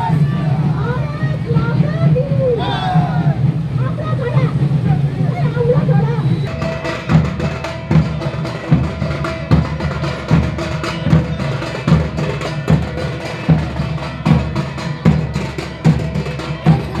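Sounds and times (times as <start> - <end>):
drums playing steady rhythm: 0.0 - 17.0.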